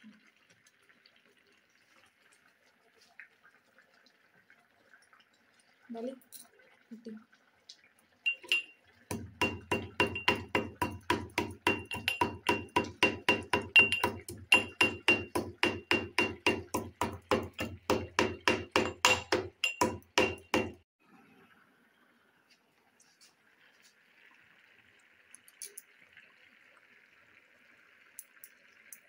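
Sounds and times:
metal pestle pounding in mortar: 0:09.1 - 0:20.8.

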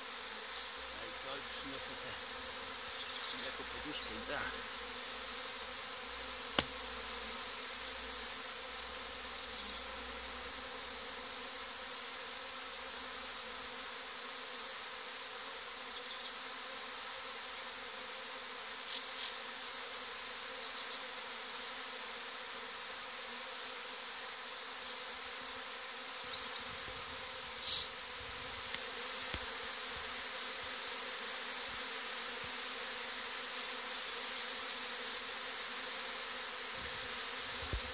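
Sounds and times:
bees humming: 0:00.0 - 0:37.9.

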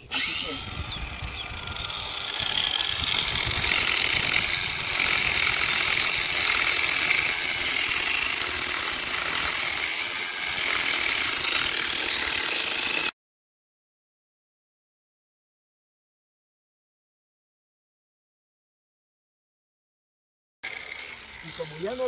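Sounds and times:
angle grinder cutting pipe: 0:00.0 - 0:13.1, 0:20.6 - 0:22.0.

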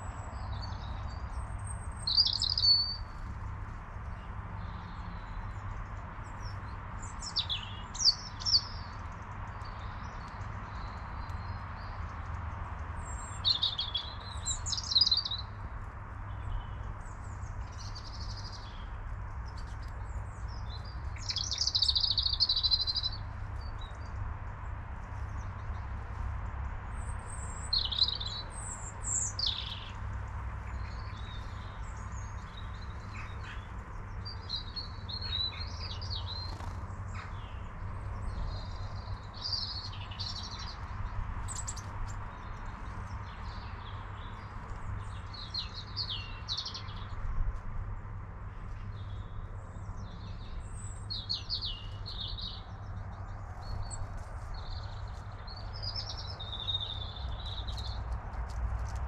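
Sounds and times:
small songbirds chirping: 0:00.0 - 0:59.0.

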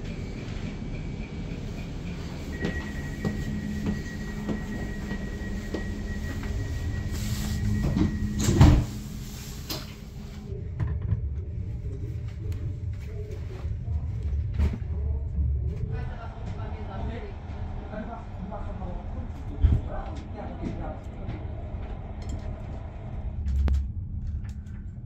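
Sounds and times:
dull rumble: 0:00.0 - 0:25.0
footsteps: 0:02.6 - 0:10.4.

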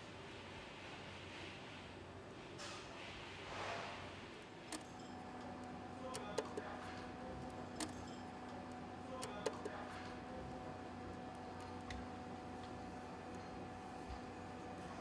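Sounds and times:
metallic clicks and taps: 0:04.7 - 0:10.2.

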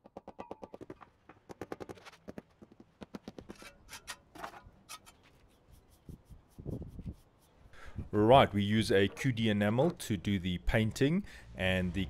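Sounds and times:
rubber mallet knocking bricks: 0:00.0 - 0:03.6.

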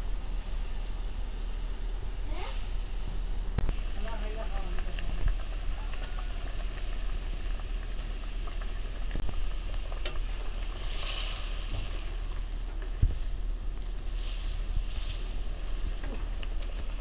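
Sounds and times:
gravy bubbling at a boil: 0:00.0 - 0:17.0
short hiss: 0:02.3 - 0:02.9.

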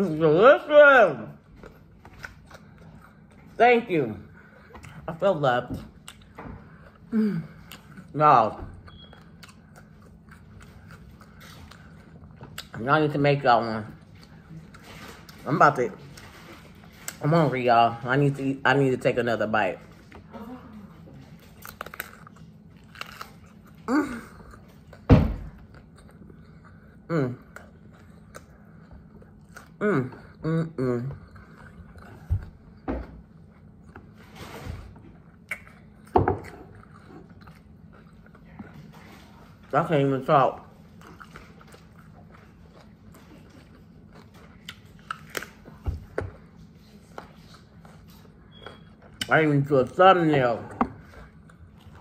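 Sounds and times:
chewing crunchy food: 0:01.3 - 0:18.1, 0:19.6 - 0:52.0
person humming: 0:29.8 - 0:31.2
mouth smacks and clicks: 0:35.4 - 0:35.8.

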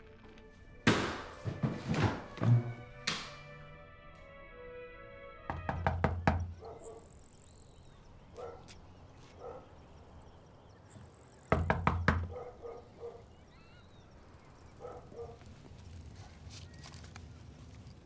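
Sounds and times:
knocking on wooden door: 0:05.5 - 0:06.6, 0:11.5 - 0:12.3.

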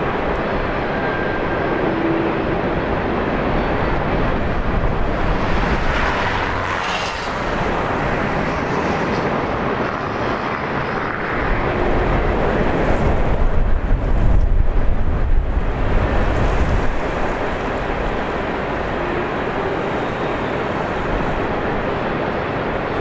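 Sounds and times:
river rapids rushing: 0:00.0 - 0:10.8, 0:15.7 - 0:23.0
wind buffeting microphone: 0:00.0 - 0:23.0.

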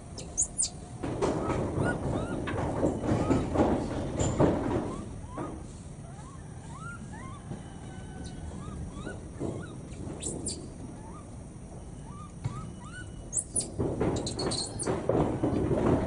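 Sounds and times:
high sharp monkey chirps: 0:00.2 - 0:00.8, 0:06.0 - 0:07.5, 0:08.2 - 0:11.3, 0:12.0 - 0:14.8
monkeys cooing: 0:01.3 - 0:03.9, 0:04.7 - 0:11.4, 0:12.0 - 0:14.8.

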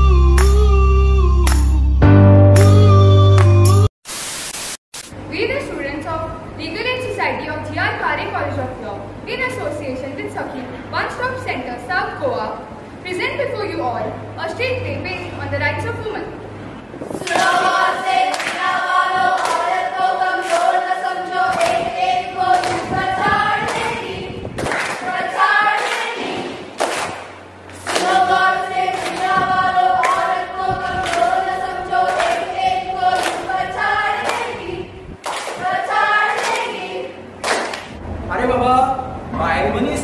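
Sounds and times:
hand claps: 0:00.4 - 0:00.6, 0:01.5 - 0:01.7, 0:18.3 - 0:18.6, 0:22.6 - 0:22.9, 0:24.6 - 0:25.0, 0:26.8 - 0:28.2, 0:33.2 - 0:33.4, 0:35.2 - 0:35.6, 0:37.4 - 0:38.0
group singing a chant-like song: 0:17.2 - 0:26.8, 0:27.8 - 0:37.4.

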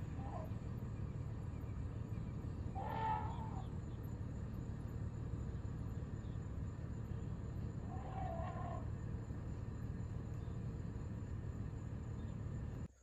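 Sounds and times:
low rumble: 0:00.0 - 0:12.9
elephant trumpeting: 0:02.7 - 0:03.7, 0:07.8 - 0:09.0.

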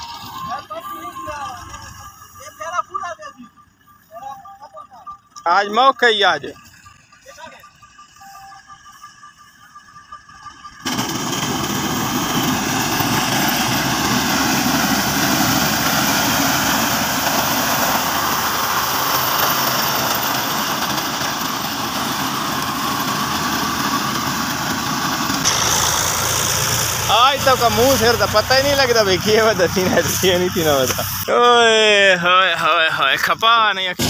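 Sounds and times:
tractor diesel engine running: 0:00.0 - 0:34.0
reaper cutting crop: 0:10.8 - 0:31.3.

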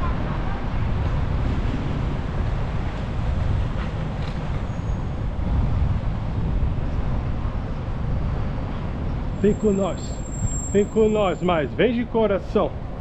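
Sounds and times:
wind on microphone: 0:00.0 - 0:09.4
city traffic noise: 0:00.0 - 0:13.0.

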